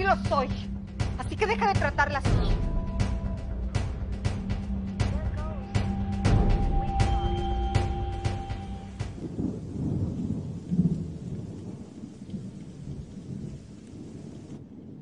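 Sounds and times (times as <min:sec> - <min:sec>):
rain hissing: 0:00.0 - 0:15.0
rolling thunder: 0:00.0 - 0:15.0.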